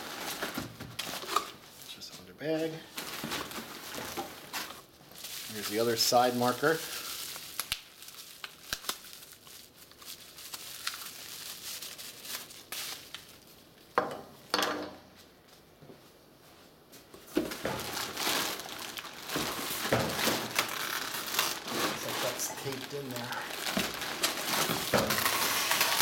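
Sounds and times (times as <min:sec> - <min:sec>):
plastic packaging crinkling: 0:00.0 - 0:13.9, 0:17.4 - 0:26.0
cardboard box rustling: 0:17.4 - 0:26.0.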